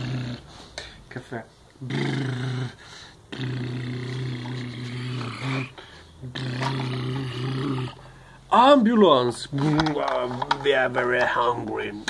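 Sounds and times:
man imitating car engine: 0.0 - 0.5, 1.8 - 8.0.

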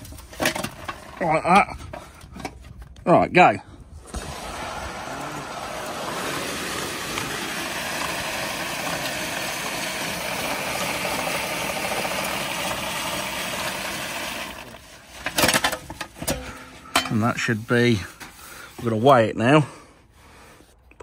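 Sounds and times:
seed pouring into bag: 4.1 - 14.8.

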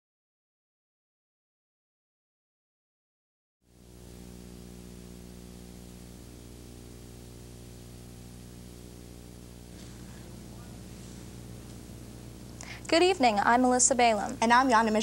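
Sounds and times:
electrical hum buzz: 3.7 - 15.0
tape hiss: 3.7 - 15.0.

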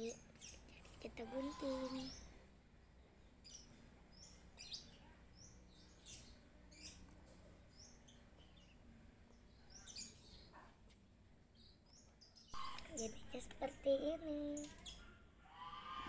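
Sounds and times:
faint bird chirps: 0.0 - 2.4.

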